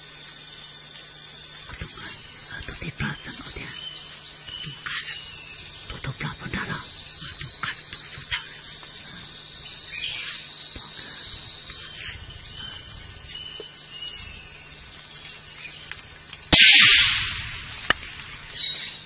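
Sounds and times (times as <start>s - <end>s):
birds and insects chirping: 0.0s - 19.0s
gunshot: 16.5s - 18.0s.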